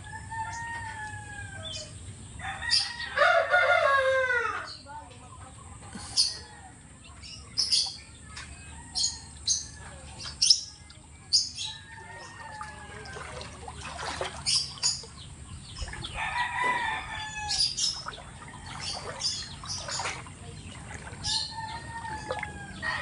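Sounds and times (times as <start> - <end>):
rooster crowing: 0.0 - 4.7, 16.1 - 17.7, 21.3 - 23.0.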